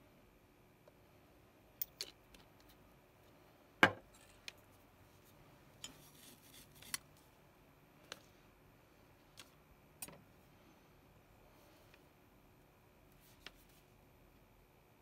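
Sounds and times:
tools tapping on workbench: 3.8s - 4.1s.

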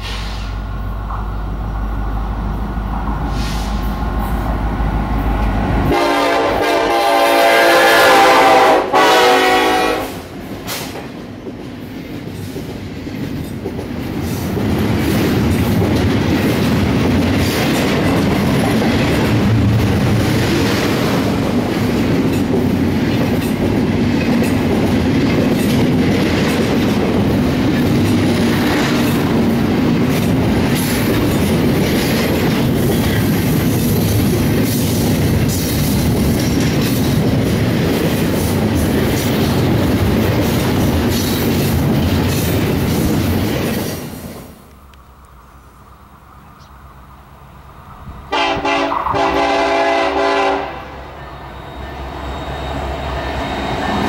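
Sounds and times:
train engines humming: 0.0s - 54.0s
train air horn blast: 3.3s - 3.9s, 5.8s - 10.3s, 48.3s - 51.0s
train wheels clattering on rails: 9.5s - 44.6s.

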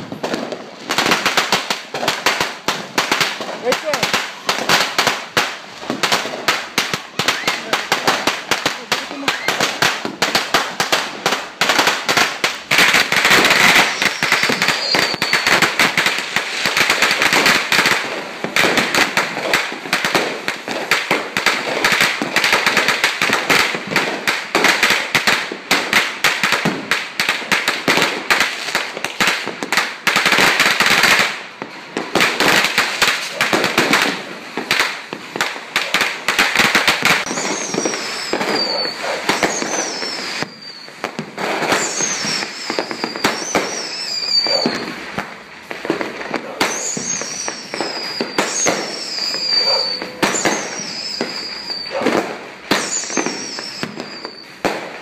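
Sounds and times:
fireworks crackling bangs: 0.0s - 55.0s
firework shots with falling whistle: 7.1s - 7.7s, 9.0s - 10.2s, 13.2s - 16.0s, 36.9s - 45.0s, 46.5s - 54.9s.

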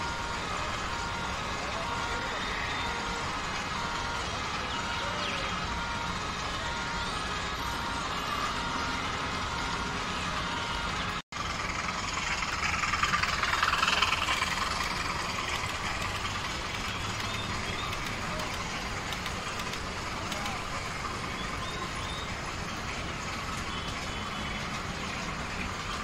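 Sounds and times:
model train rumbling: 0.0s - 26.0s.

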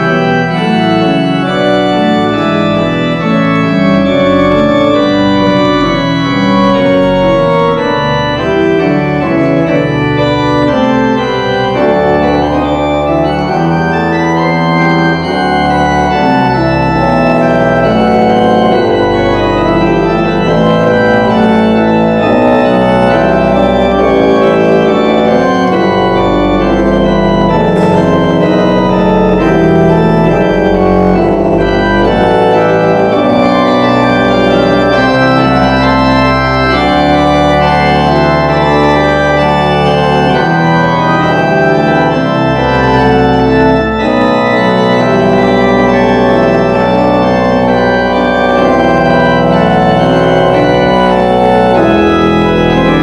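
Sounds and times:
church organ chords: 0.0s - 53.0s.

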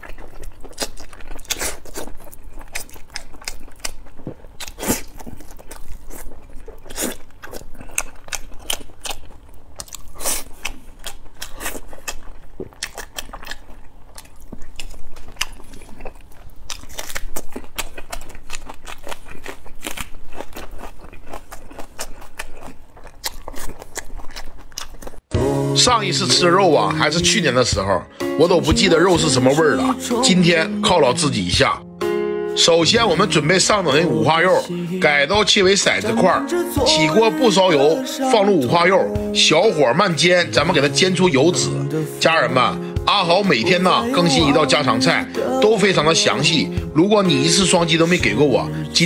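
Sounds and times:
man chewing food: 0.0s - 25.6s.

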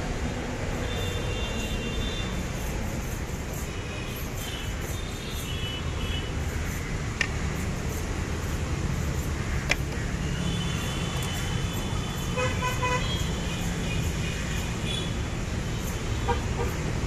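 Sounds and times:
road traffic rumble: 0.0s - 17.0s
vehicle horn: 12.3s - 13.3s.

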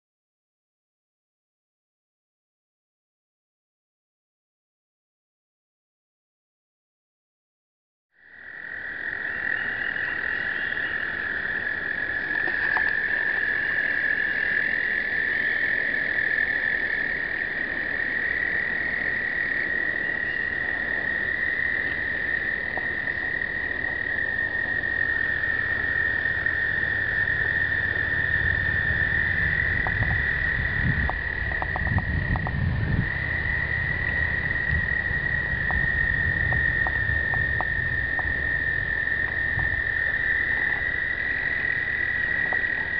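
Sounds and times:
toads trilling in chorus: 8.2s - 42.9s
low rumbling: 21.6s - 42.9s.

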